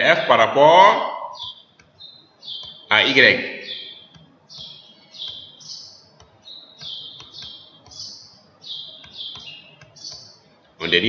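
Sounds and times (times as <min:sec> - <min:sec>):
small bird chirping: 0:01.2 - 0:11.0
faint clicks: 0:01.4 - 0:02.9, 0:04.0 - 0:10.8.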